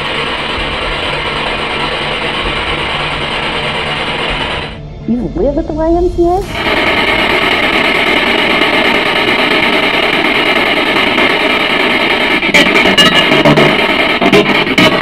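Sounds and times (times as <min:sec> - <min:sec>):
distorted guitar drone: 0:00.0 - 0:15.0.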